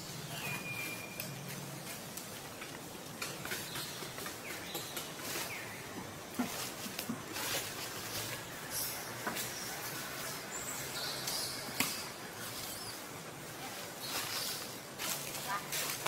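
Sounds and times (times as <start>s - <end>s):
faint bird chirps: 0.3s - 1.4s.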